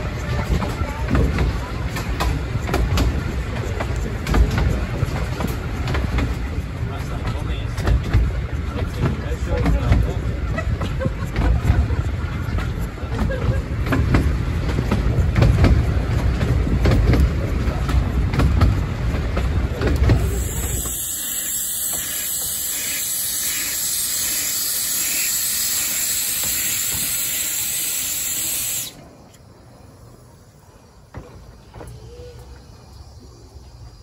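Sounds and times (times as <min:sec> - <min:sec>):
railway carriage rumbling: 0:00.0 - 0:34.0
steam hissing from locomotive: 0:19.9 - 0:29.2.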